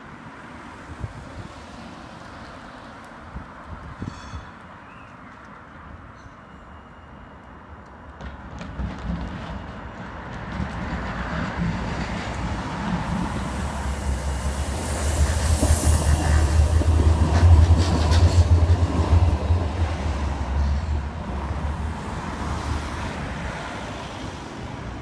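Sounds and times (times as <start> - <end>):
tram approaching: 0.0 - 25.0
wheels hissing on rails: 12.4 - 20.9.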